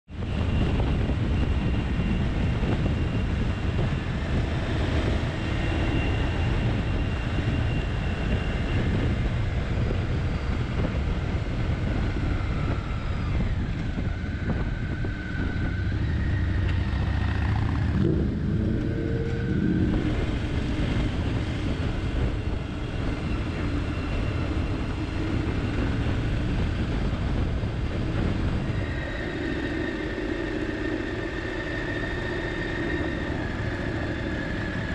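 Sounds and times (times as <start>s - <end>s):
motorcycle engine drone: 0.1s - 34.9s
wind rushing on microphone: 0.1s - 34.9s.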